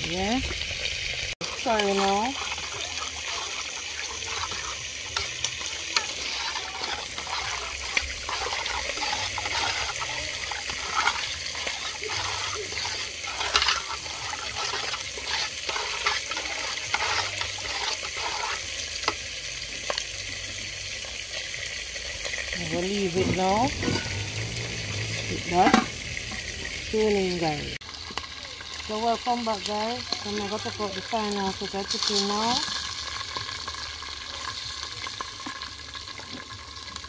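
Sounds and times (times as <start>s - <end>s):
liquid sloshing and splashing: 0.6s - 18.7s.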